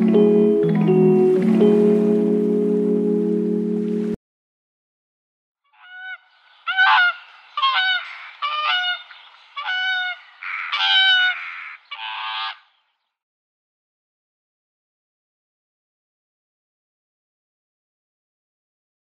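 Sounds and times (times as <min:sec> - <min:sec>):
swan honking: 0:05.7 - 0:12.6.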